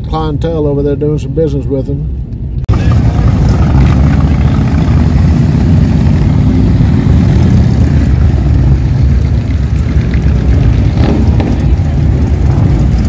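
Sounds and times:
motorcycles riding past: 2.7s - 13.0s.

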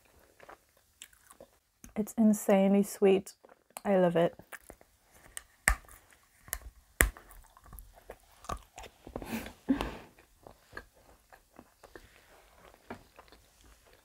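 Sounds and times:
chewing with wet mouth sounds: 0.0s - 2.0s, 3.4s - 9.2s, 10.1s - 14.0s
chocolate shell snapping: 5.3s - 7.4s.

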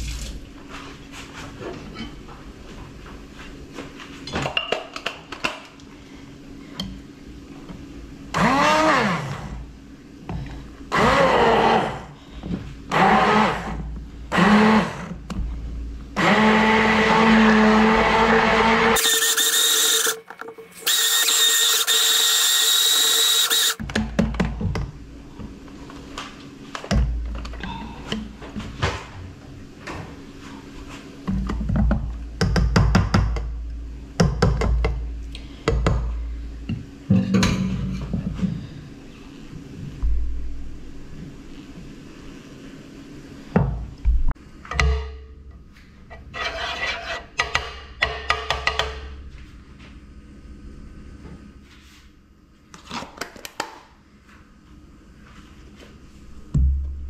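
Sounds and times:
immersion blender motor: 8.4s - 9.5s, 10.9s - 12.1s, 12.9s - 15.0s, 16.2s - 20.2s, 20.8s - 23.8s.

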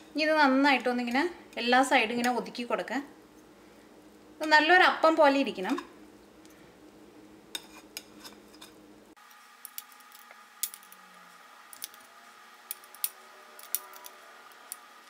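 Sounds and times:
metal spoon scraping ceramic bowl: 12.7s - 14.8s.

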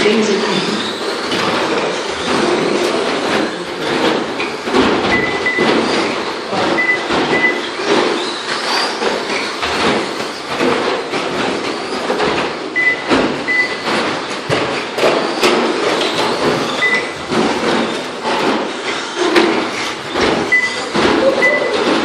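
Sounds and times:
sharp knocks and clatters: 0.6s - 22.0s
short high beeps: 21.4s - 21.7s.

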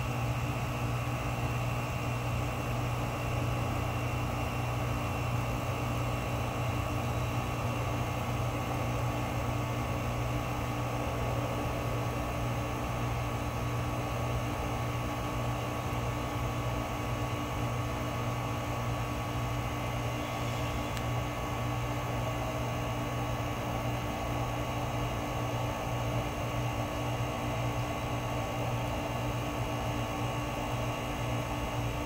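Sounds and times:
heat pump humming: 0.0s - 32.0s.

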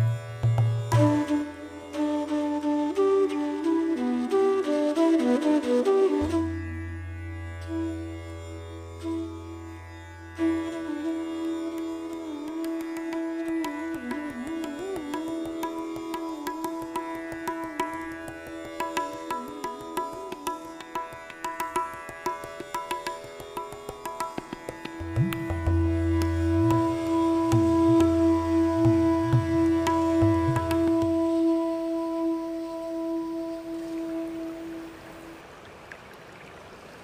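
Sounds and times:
plucked-string melody: 0.0s - 4.5s, 5.8s - 35.1s.

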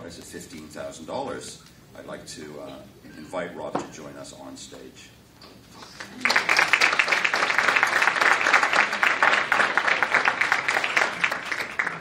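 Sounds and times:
audience applauding: 6.0s - 12.0s.

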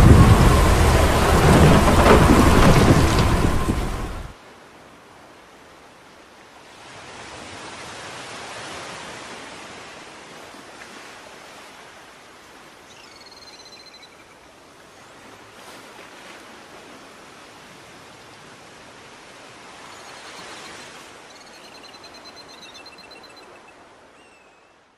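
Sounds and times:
steady rushing noise: 0.0s - 4.3s.

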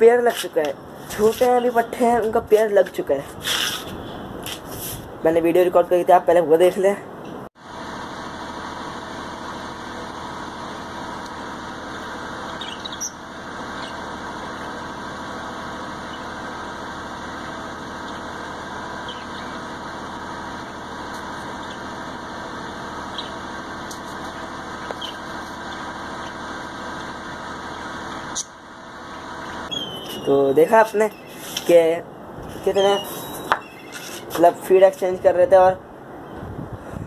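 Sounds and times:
mechanical hum: 0.0s - 37.0s
budgerigar chirps: 12.5s - 13.2s, 19.0s - 19.6s, 29.7s - 31.6s.

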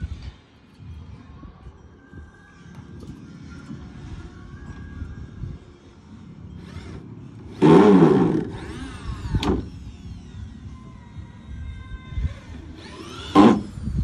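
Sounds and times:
cordless drill running: 6.6s - 10.4s, 12.8s - 14.0s.

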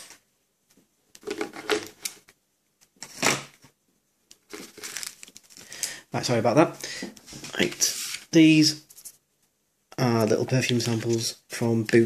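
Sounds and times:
plastic tubes clattering on wood: 1.2s - 2.3s
paper packets rustling: 4.4s - 6.0s.

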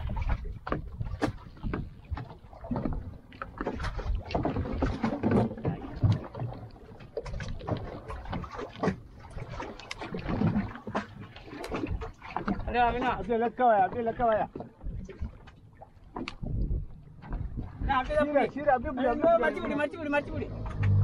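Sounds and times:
water splashing against boat hull: 0.0s - 21.0s
low wind rumble: 14.7s - 21.0s.

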